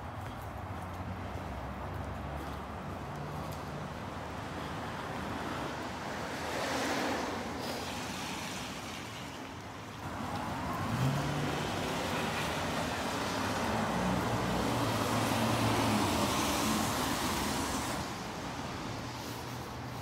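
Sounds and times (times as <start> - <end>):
tyres hissing on wet pavement: 4.4 - 20.0.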